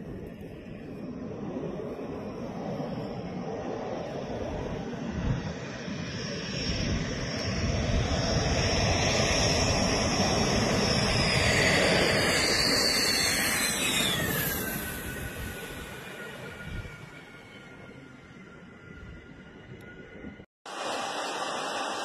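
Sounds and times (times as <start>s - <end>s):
jet engine roar: 0.0s - 22.0s
high whine sliding down: 8.5s - 22.0s.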